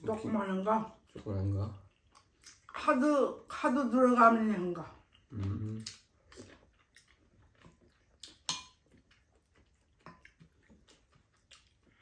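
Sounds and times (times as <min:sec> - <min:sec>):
chewing: 0:00.0 - 0:03.5, 0:04.8 - 0:12.0.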